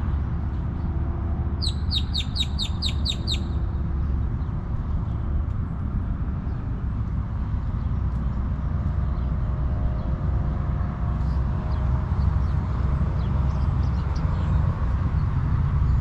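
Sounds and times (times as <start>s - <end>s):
steady low rumble: 0.0s - 16.0s
bird calling sharp notes: 1.6s - 3.6s.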